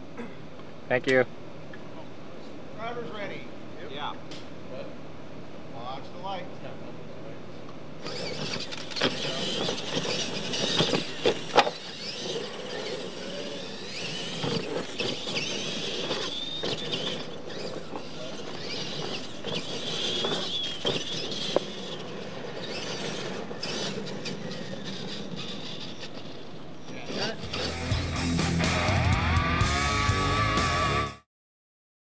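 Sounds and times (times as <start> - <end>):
toy truck motor whine: 8.0 - 29.0.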